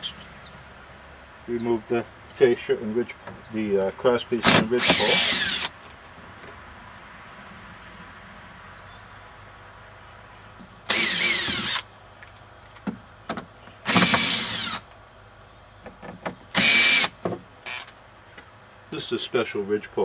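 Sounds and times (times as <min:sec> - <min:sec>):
screw gun whirring: 0:04.6 - 0:05.8, 0:10.9 - 0:11.8, 0:13.9 - 0:14.8, 0:16.6 - 0:17.1, 0:17.7 - 0:17.9.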